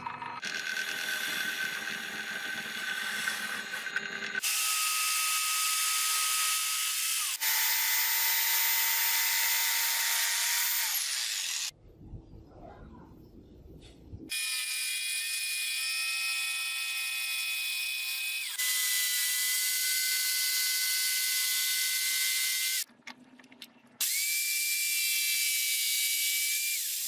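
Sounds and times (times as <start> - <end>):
jigsaw cutting wood: 0.4 - 11.7, 14.3 - 22.8.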